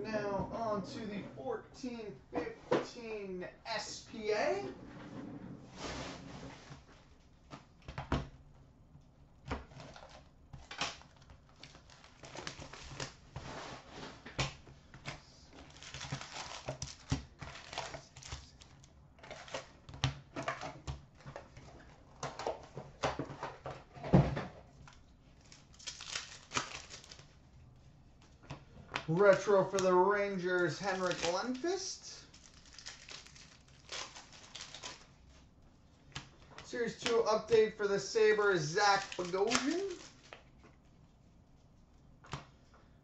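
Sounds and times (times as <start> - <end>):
plastic and foil crinkling tearing: 9.7 - 13.2, 15.4 - 19.8, 25.3 - 27.4, 29.1 - 35.4, 36.2 - 40.6
card packs tapping down: 38.6 - 40.2.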